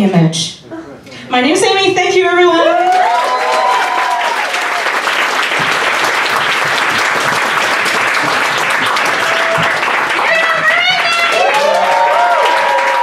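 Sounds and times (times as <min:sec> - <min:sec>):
audience applauding: 0:02.8 - 0:13.0.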